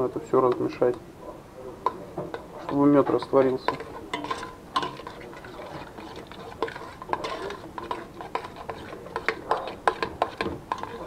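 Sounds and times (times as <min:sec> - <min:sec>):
spoon scraping a metal pot: 0:02.3 - 0:11.0.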